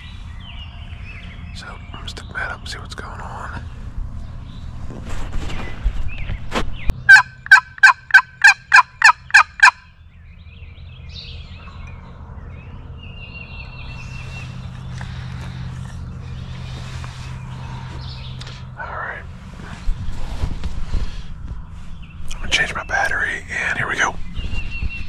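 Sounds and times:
turkey yelps: 7.1s - 9.8s.

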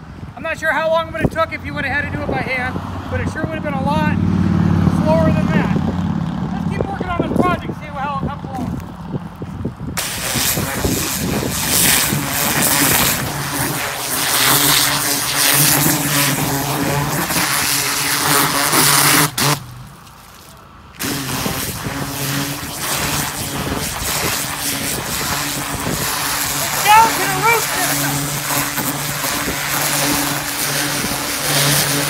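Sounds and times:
pressure washer jet hissing: 10.0s - 19.6s, 21.0s - 32.0s
motor hum: 20.9s - 32.0s.

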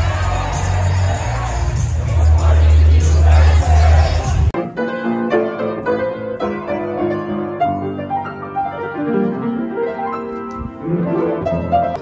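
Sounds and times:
slow piano music: 4.6s - 12.0s.

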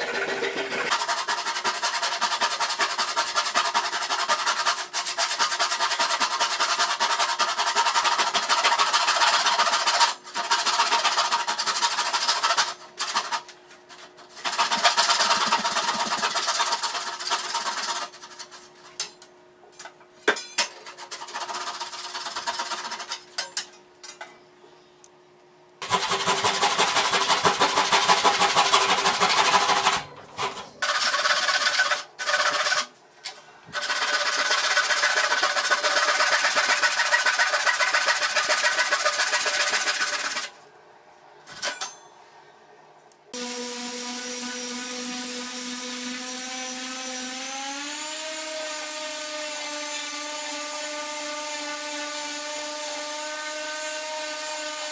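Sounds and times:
pull saw rasping through wood: 33.7s - 40.5s.

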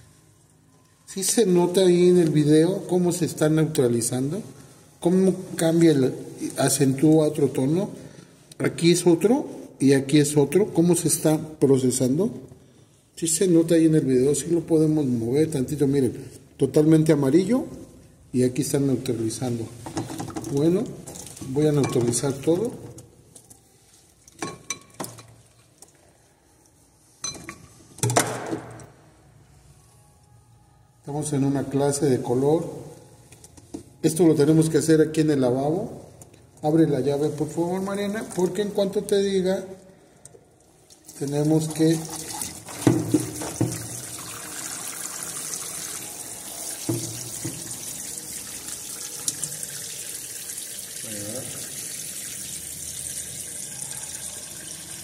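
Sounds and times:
brush clinking against glass bowl: 20.4s - 22.5s, 24.3s - 25.4s, 27.2s - 27.8s
liquid splashing over wet hair: 40.9s - 49.9s
tap water running into basin: 41.0s - 55.0s.

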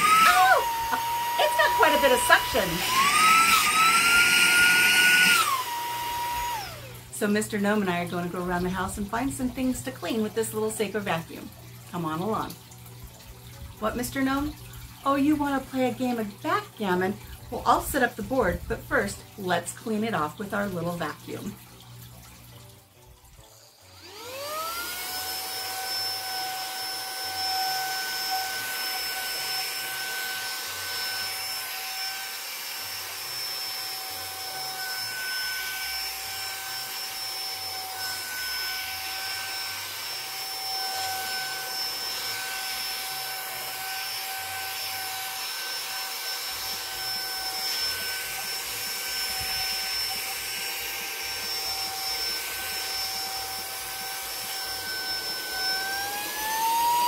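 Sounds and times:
handheld vacuum whining: 0.0s - 7.6s, 23.5s - 57.0s.

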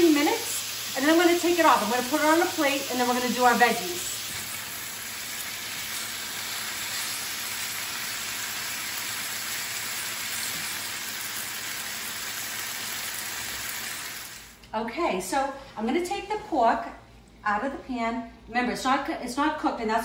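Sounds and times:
pork sizzling in oil: 0.0s - 14.6s.

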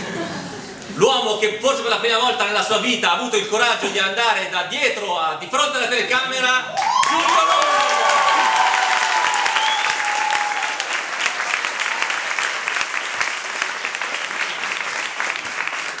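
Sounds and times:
cheering shout: 6.7s - 12.4s
audience applauding: 6.8s - 16.0s.

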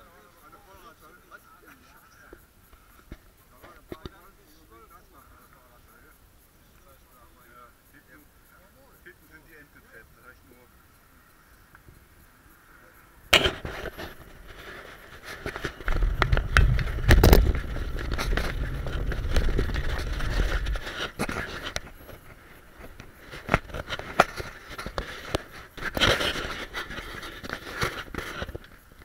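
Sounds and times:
wind rumble on microphone: 13.6s - 24.9s.

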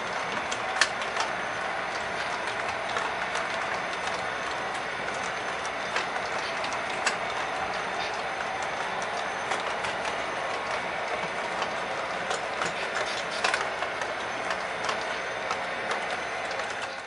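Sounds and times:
model freight cars rolling rattle: 0.0s - 17.0s
wheels clicking over rail joints: 0.0s - 17.0s.

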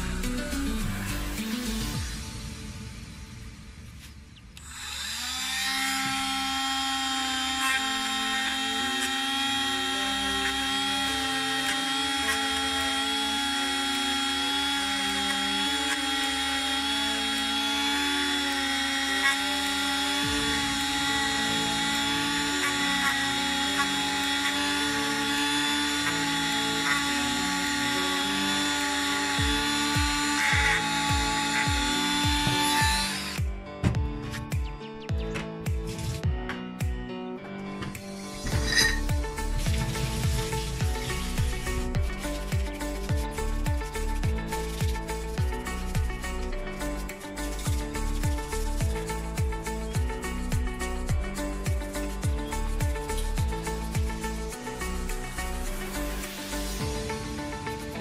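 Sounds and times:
rotary tool whining: 3.9s - 33.4s, 38.3s - 58.0s.

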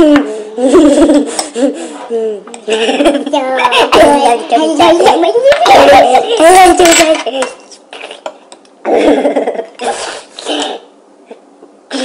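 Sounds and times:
boys' voices: 2.1s - 7.7s.

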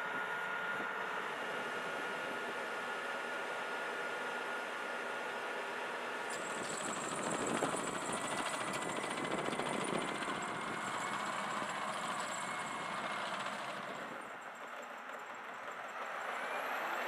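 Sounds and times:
turbine engine whine: 0.0s - 5.0s, 5.7s - 17.0s
engine rumble: 6.0s - 16.8s.

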